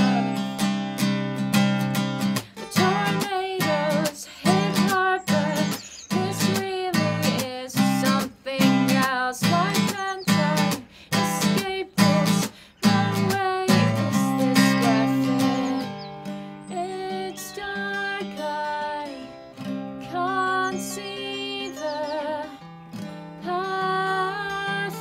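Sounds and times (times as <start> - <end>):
woman singing: 0.0 - 0.7, 2.4 - 22.6, 23.4 - 25.0
acoustic guitar strumming: 0.0 - 25.0.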